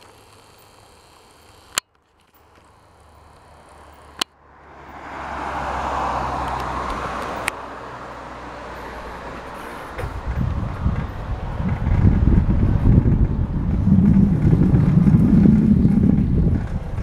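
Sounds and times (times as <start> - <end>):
sharp clicks: 0.0 - 4.4
rushing wind: 5.0 - 17.0
rolling noise: 8.8 - 17.0.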